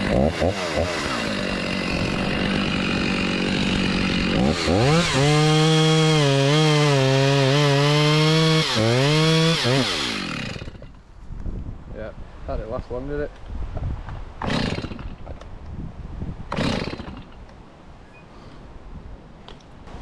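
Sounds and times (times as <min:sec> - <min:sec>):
chainsaw cutting through trunk: 0:00.0 - 0:10.9, 0:14.4 - 0:15.3, 0:16.5 - 0:17.4.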